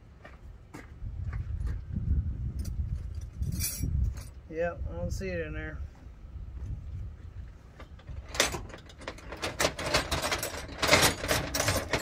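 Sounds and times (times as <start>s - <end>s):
metal tools clattering in a bag: 2.6s - 4.4s, 8.3s - 12.0s.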